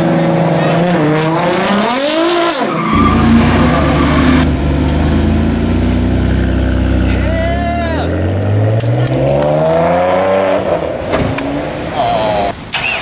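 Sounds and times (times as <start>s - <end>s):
car engine revving with squeal: 0.6s - 7.3s
car engine idling: 2.8s - 8.4s.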